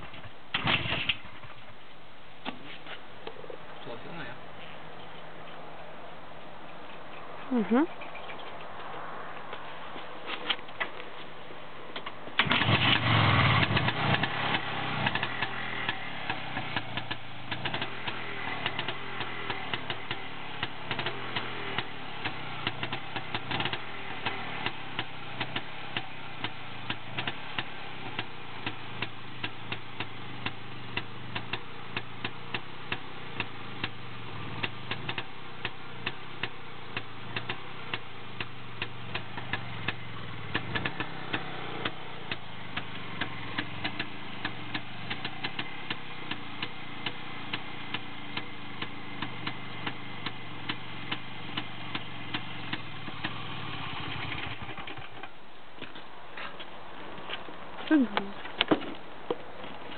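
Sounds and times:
two-stroke engine kick-started: 0.0s - 1.6s, 12.4s - 55.4s
engine idling with sharp pops: 0.0s - 4.3s, 8.0s - 59.9s.

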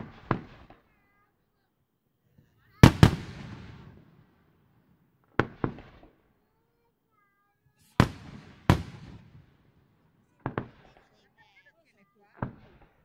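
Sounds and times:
firework shells bursting: 2.8s - 4.1s, 5.3s - 6.2s, 7.8s - 11.2s.

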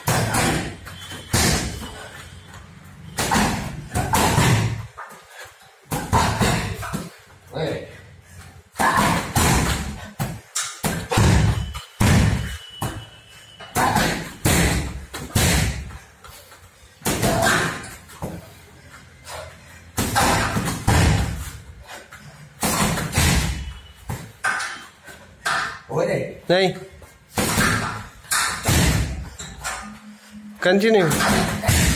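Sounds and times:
strikes thudding on punching bag: 3.2s - 4.8s, 8.8s - 12.6s, 13.8s - 15.9s, 20.0s - 21.5s, 27.3s - 29.2s, 31.1s - 31.9s.

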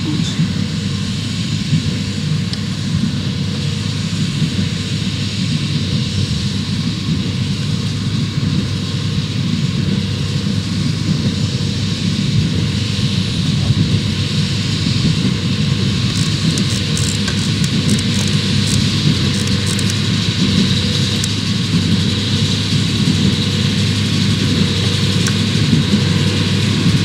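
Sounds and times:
tractor diesel engine under load: 0.0s - 27.0s
square baler running: 14.0s - 27.0s.

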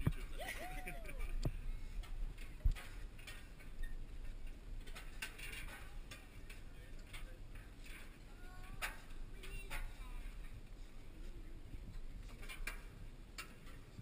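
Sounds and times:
steady low rumble: 0.0s - 8.4s.

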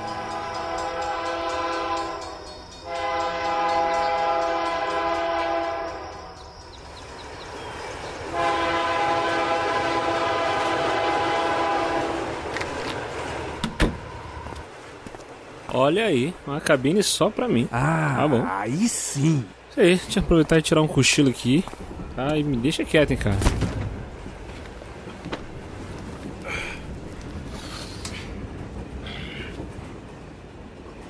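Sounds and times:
train horn blasts: 0.0s - 6.2s, 8.3s - 12.3s.

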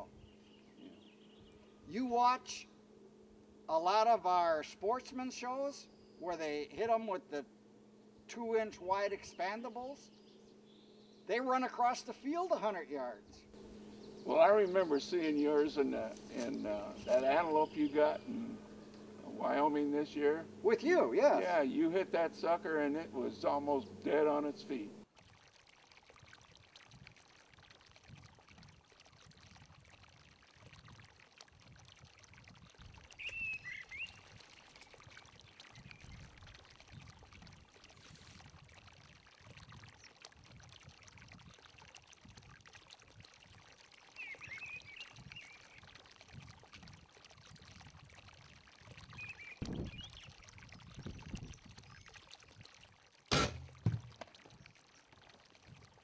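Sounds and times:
birds chirping: 0.0s - 2.7s, 13.3s - 25.0s, 33.1s - 36.3s, 44.1s - 45.9s, 49.1s - 52.1s
wind rumble on microphone: 35.7s - 38.9s, 46.2s - 52.7s
dull thump: 53.3s - 54.2s.

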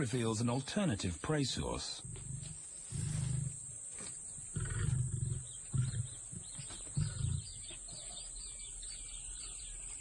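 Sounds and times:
deep animal grunts: 4.5s - 7.6s.

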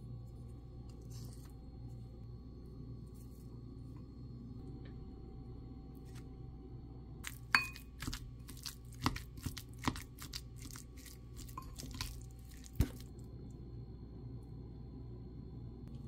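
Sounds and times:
soft squelching and scraping: 0.0s - 4.8s, 7.2s - 13.3s.

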